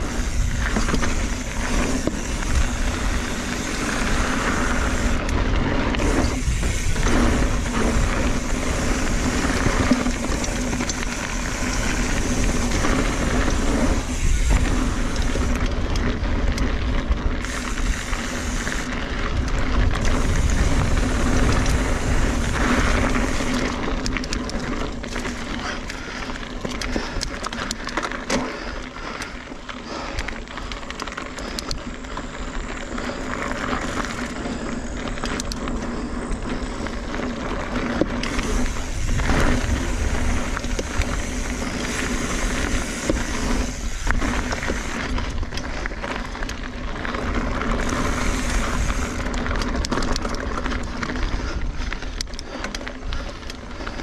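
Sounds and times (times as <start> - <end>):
wind on microphone: 0.0 - 23.8, 38.3 - 45.9
bike rattling over bumps: 0.0 - 54.0
bike tyres rolling on dirt: 0.0 - 54.0.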